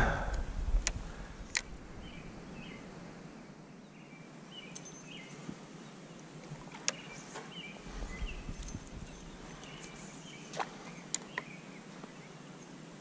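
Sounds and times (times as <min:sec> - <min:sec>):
small bird chirping: 0:03.8 - 0:12.8.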